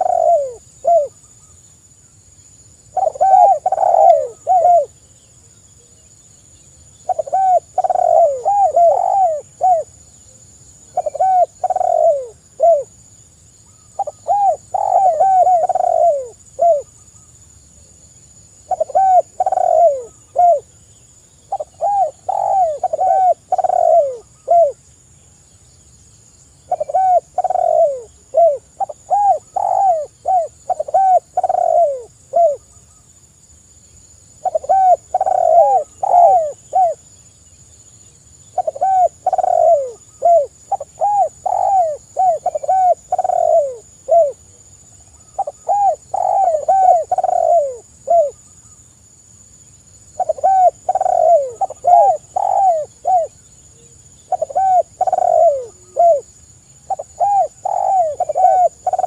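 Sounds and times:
doves cooing: 0:00.0 - 0:01.2, 0:02.9 - 0:05.0, 0:07.0 - 0:09.9, 0:10.9 - 0:12.9, 0:13.9 - 0:16.9, 0:18.7 - 0:20.7, 0:21.5 - 0:24.8, 0:26.7 - 0:32.6, 0:34.4 - 0:37.0, 0:38.5 - 0:44.6, 0:45.2 - 0:48.4, 0:50.2 - 0:53.4, 0:54.3 - 0:56.3, 0:56.9 - 0:59.0.

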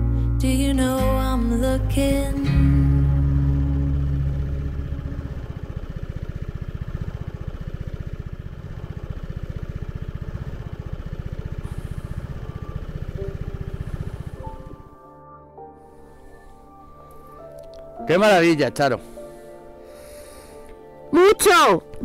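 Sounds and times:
background music: 0:00.0 - 0:05.9, 0:11.6 - 0:22.0
motorcycle engine idling: 0:00.0 - 0:15.1.

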